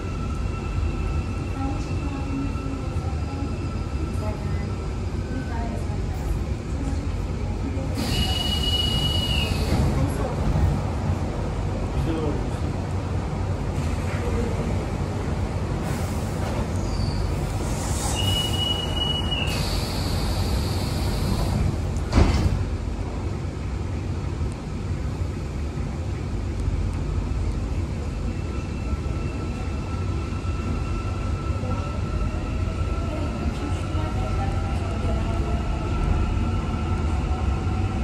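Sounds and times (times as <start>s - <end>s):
faint train whine: 0.0s - 10.7s
low train rumble: 0.0s - 38.0s
train doors banging shut: 21.4s - 22.8s.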